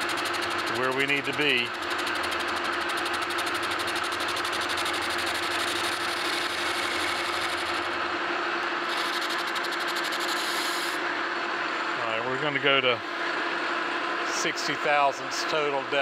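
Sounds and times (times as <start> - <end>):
metal lathe cutting: 0.0 - 11.3.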